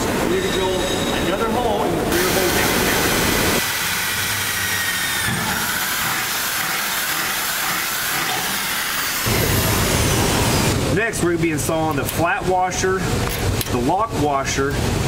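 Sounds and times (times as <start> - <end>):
electric drill boring into metal: 3.6 - 10.8.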